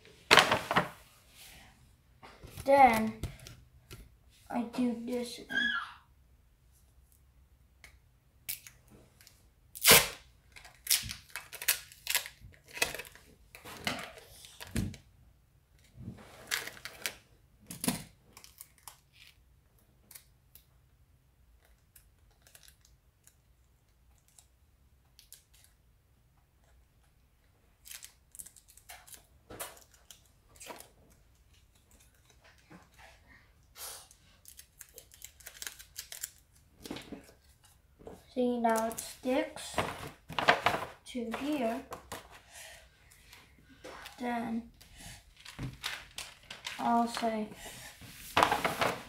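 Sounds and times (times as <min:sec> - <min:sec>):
packing tape ripping off roll: 0:09.7 - 0:13.2
tape crinkling in fingers: 0:21.6 - 0:23.5, 0:27.8 - 0:32.7, 0:34.4 - 0:36.7.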